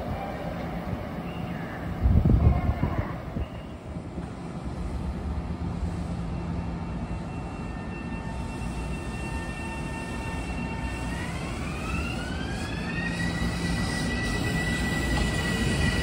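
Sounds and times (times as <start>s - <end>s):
low train rumble: 0.0s - 16.0s
train traction motors whining: 7.2s - 16.0s.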